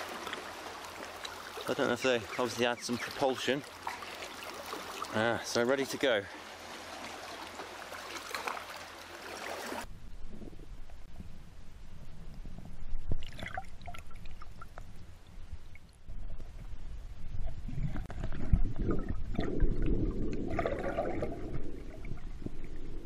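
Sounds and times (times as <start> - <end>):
water sloshing underwater: 0.0 - 11.4, 12.0 - 23.0
low churning rumble: 9.9 - 23.0
bubbles bursting: 17.6 - 23.0.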